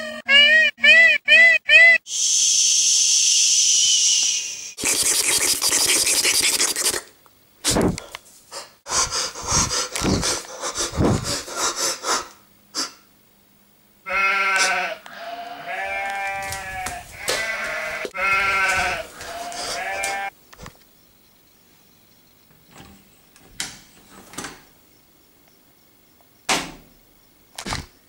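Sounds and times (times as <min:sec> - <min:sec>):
loud hissing rush: 0:02.1 - 0:07.0
high bleat-like cries: 0:14.1 - 0:20.4.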